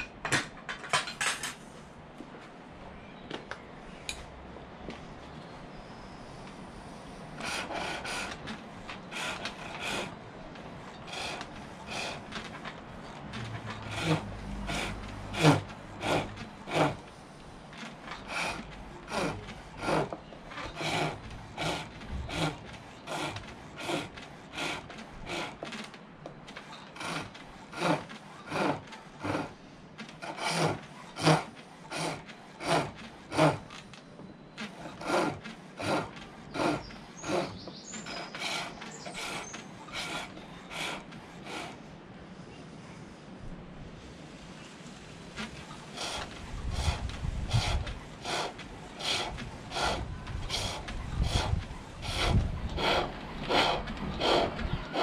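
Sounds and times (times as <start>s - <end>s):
lathe tool scraping wood: 6.3s - 41.8s, 45.2s - 55.0s.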